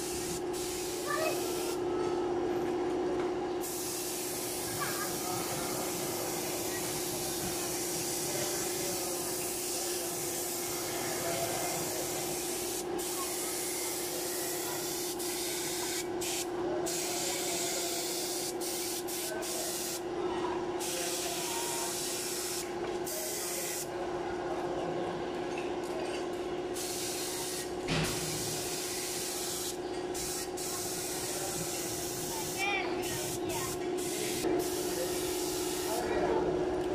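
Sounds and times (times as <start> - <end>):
spray gun hissing: 0.0 - 1.8, 3.6 - 20.0, 26.8 - 36.0.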